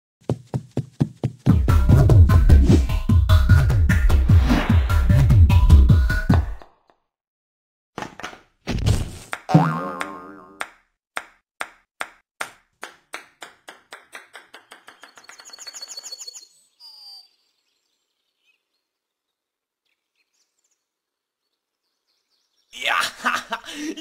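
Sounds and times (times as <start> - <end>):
ping-pong ball bouncing on table: 9.5 - 15.3.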